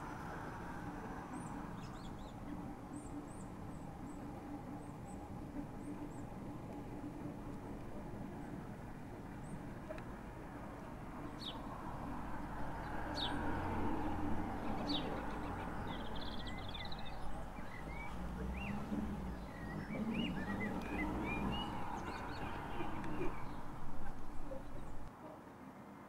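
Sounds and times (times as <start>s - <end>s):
low background rumble: 0.0s - 25.1s
small songbirds chirping: 1.2s - 10.1s, 10.8s - 25.1s
bird trill: 14.6s - 25.1s.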